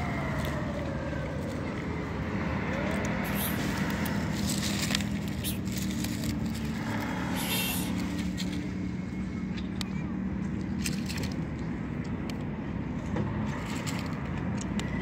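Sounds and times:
low engine hum: 0:00.0 - 0:15.0
street traffic rumble: 0:00.0 - 0:15.0
cat crunching dry kibble: 0:03.0 - 0:08.7, 0:10.6 - 0:12.4, 0:13.5 - 0:15.0.

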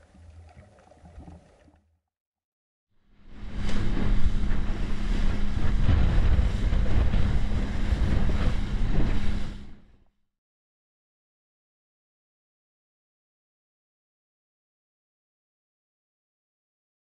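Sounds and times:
boat engine hum: 0:00.0 - 0:02.0, 0:03.4 - 0:09.9
wind buffeting microphone: 0:03.5 - 0:09.7
hull slapping waves: 0:03.7 - 0:09.9.

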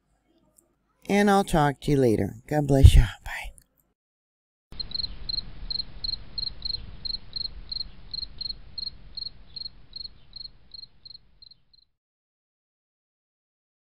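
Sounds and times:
cricket chirping: 0:04.8 - 0:11.9.

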